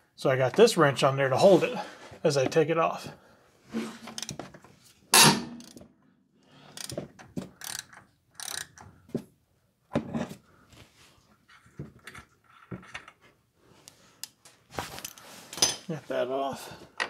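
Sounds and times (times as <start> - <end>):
socket ratchet clicking: 7.6 - 8.8.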